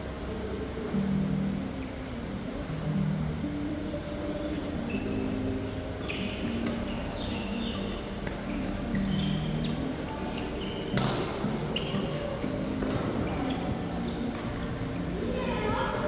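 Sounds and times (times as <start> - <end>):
shoes squeaking on floor: 4.8 - 14.7.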